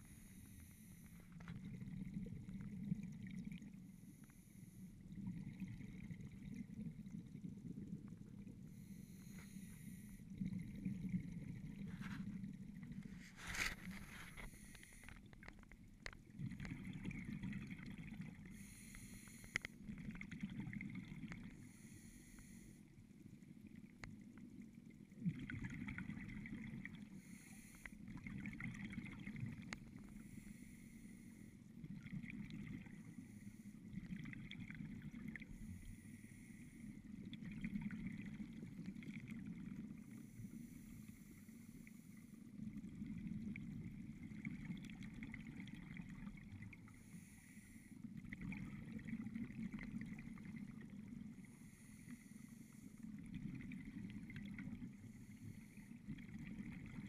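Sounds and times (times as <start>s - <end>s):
exhaled bubbles rushing: 16.3s - 18.5s, 25.1s - 27.2s, 28.0s - 30.2s, 33.8s - 35.9s, 48.2s - 51.4s.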